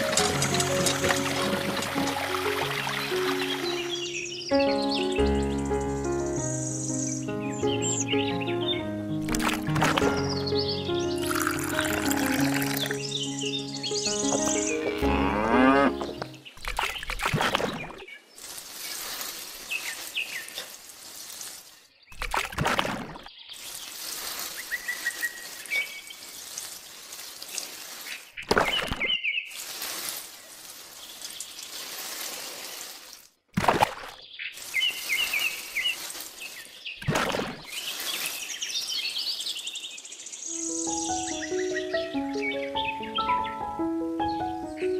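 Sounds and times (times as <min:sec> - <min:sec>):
water pouring from watering can: 0:00.0 - 0:03.9, 0:09.3 - 0:10.1, 0:11.2 - 0:13.0, 0:16.0 - 0:39.5
birds chirping: 0:00.0 - 0:22.2, 0:34.2 - 0:44.9.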